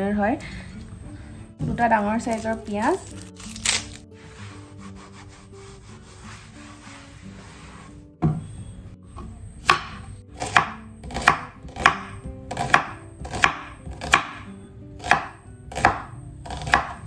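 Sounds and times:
knife slicing onion: 0:02.3 - 0:06.8, 0:09.5 - 0:17.0.

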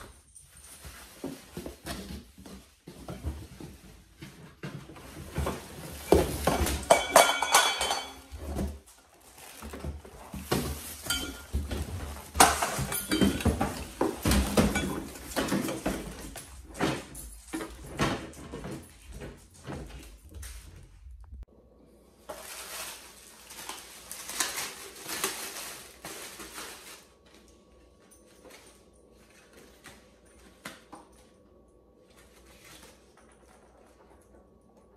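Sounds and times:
cardboard and plastic rustling: 0:00.0 - 0:21.5, 0:22.2 - 0:31.3
paper and plastic bag rustling: 0:05.0 - 0:17.5, 0:22.2 - 0:27.7.

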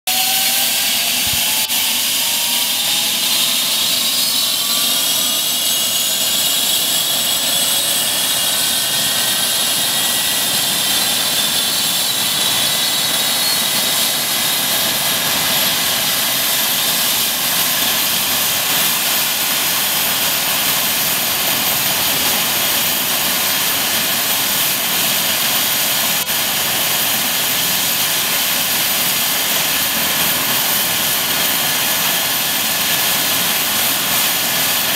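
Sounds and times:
helicopter rotor noise: 0:00.1 - 0:34.9
helicopter turbine whine: 0:00.1 - 0:34.9.

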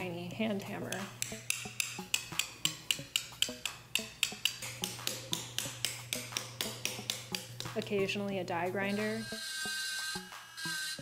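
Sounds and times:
hammer tapping chisel into marble: 0:00.9 - 0:07.9.

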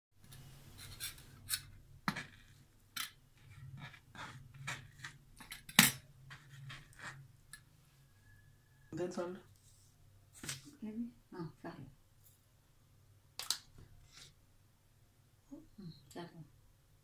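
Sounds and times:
hand scraping plastic cutting board: 0:03.4 - 0:05.2.

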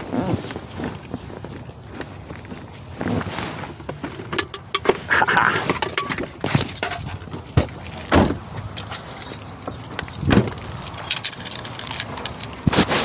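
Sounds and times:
small metal objects jingling: 0:08.6 - 0:12.7.

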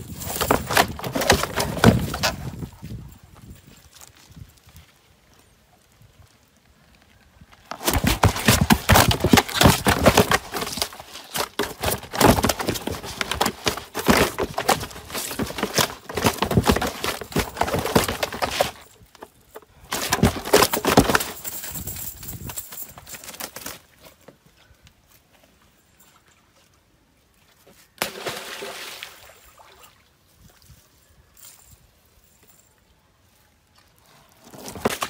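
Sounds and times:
fish slapping against plastic basin: 0:00.2 - 0:02.4, 0:07.7 - 0:18.8.

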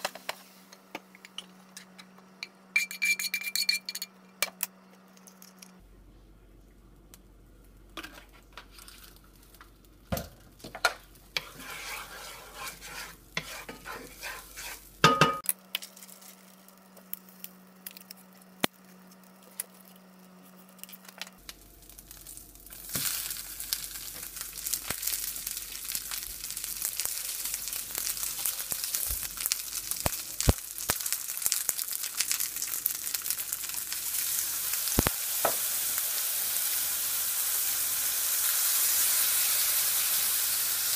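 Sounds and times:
hot oil sizzling in a frying pan: 0:11.1 - 0:15.2, 0:21.4 - 0:40.9.

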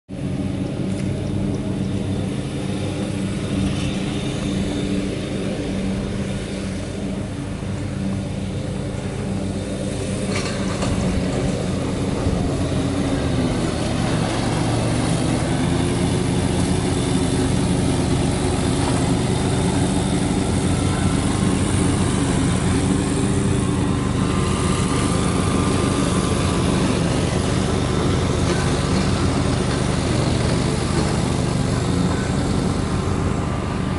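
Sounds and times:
truck engine idling: 0:00.7 - 0:33.9.

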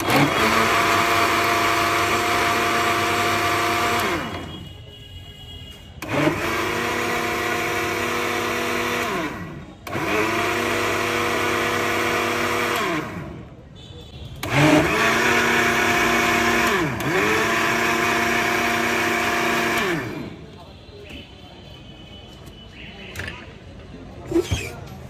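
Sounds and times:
electric blender running: 0:00.0 - 0:04.5, 0:06.0 - 0:13.4, 0:14.4 - 0:20.3.

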